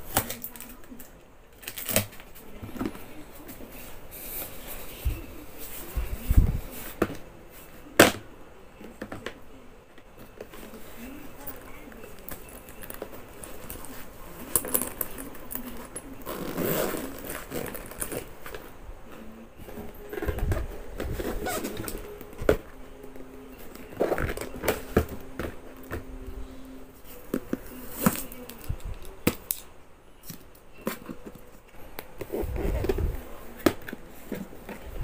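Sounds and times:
fabric pouch and strap rustling: 12.2 - 18.7, 19.6 - 22.8, 32.2 - 33.4.

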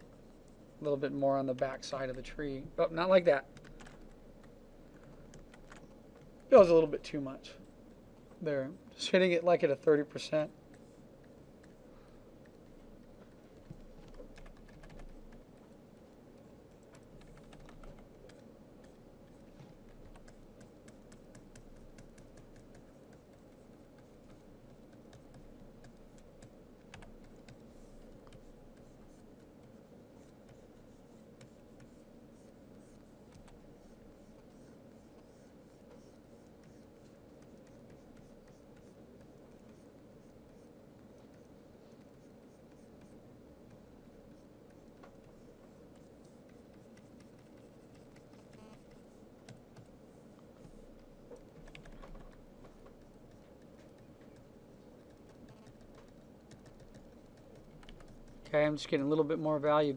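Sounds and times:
keyboard clicks: 51.4 - 58.4.

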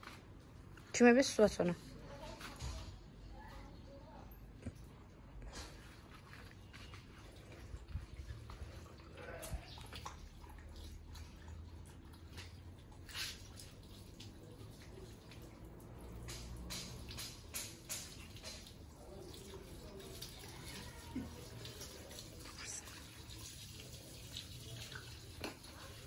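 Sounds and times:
small splashes: 5.5 - 26.0
water running from hose: 5.6 - 26.0
dog lapping water: 5.7 - 17.2.

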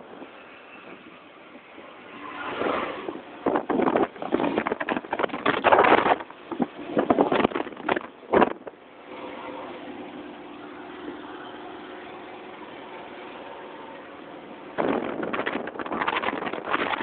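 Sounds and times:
wind buffeting microphone: 0.0 - 8.8, 14.6 - 17.0
low vehicle hum: 0.0 - 17.0
traffic rushing: 0.0 - 17.0.

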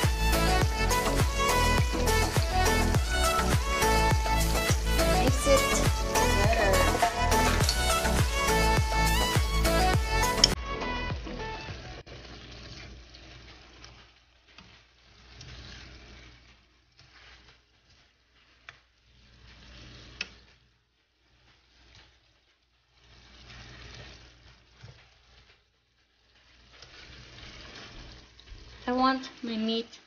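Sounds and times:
utensil stirring in pan: 0.0 - 10.6, 12.0 - 30.0
food cooking in frying pan: 0.0 - 30.0.

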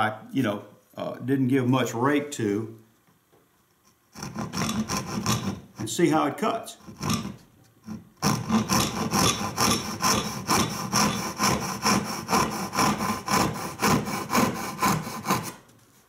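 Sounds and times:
hand saw cutting wood: 4.1 - 6.0, 6.7 - 15.7.

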